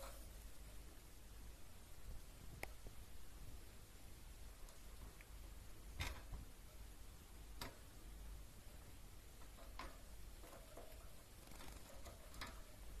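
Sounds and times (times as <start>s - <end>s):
low steady hum: 0.0s - 13.0s
birds ticking on a perch: 9.4s - 12.9s.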